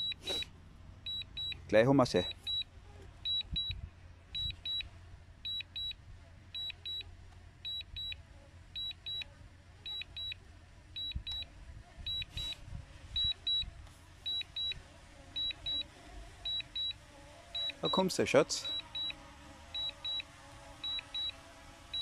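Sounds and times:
remote controller double beeps: 0.0s - 0.5s, 1.1s - 1.6s, 2.2s - 2.7s, 3.3s - 3.8s, 4.4s - 4.9s, 5.5s - 6.0s, 6.6s - 7.0s, 7.7s - 8.2s, 8.8s - 9.3s, 9.9s - 10.4s, 11.0s - 11.5s, 12.1s - 12.6s, 13.2s - 13.7s, 14.3s - 14.8s, 15.4s - 15.9s, 16.5s - 17.0s, 17.6s - 18.1s, 18.7s - 19.2s, 19.8s - 22.0s.

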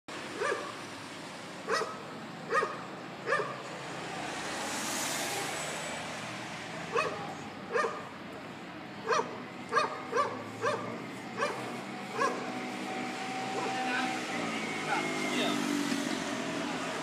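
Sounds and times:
dog barking: 0.4s - 0.8s, 1.7s - 3.6s, 6.9s - 8.1s, 9.0s - 12.5s.

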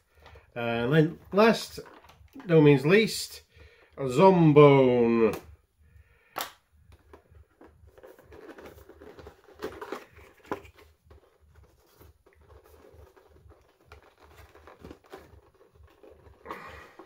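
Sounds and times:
cardboard packaging crinkling: 7.4s - 17.0s.

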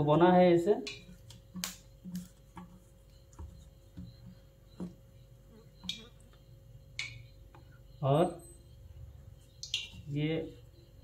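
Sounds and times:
wet clicks and taps in batter: 0.8s - 5.1s, 5.8s - 7.7s, 9.5s - 10.1s.

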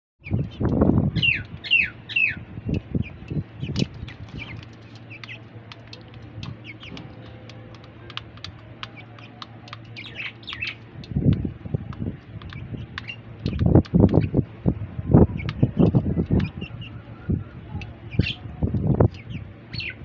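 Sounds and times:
chicks peeping: 0.2s - 20.0s
beaks ticking on metal bowl: 0.3s - 14.5s, 15.2s - 17.0s.

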